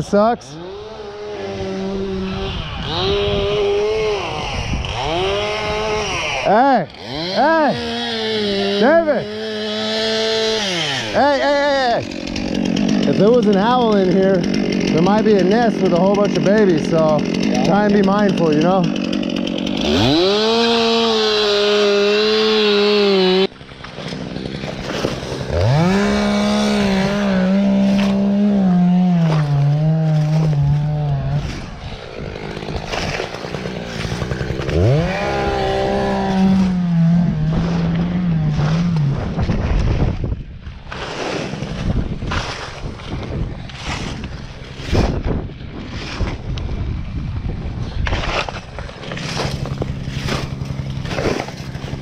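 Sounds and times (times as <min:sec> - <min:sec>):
chainsaw revving and cutting wood: 0:00.0 - 0:52.0
crunching and scraping of dry debris: 0:07.7 - 0:22.4, 0:23.5 - 0:52.0.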